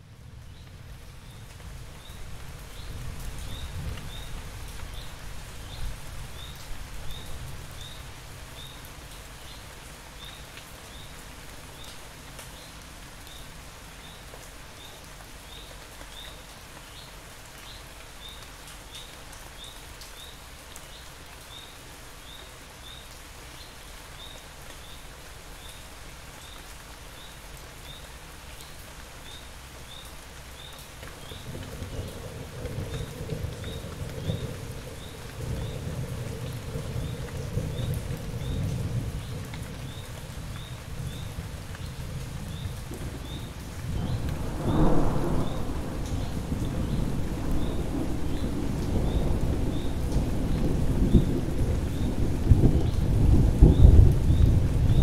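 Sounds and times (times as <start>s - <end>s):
steady rain falling: 0.0s - 55.0s
low rumble: 43.8s - 48.3s.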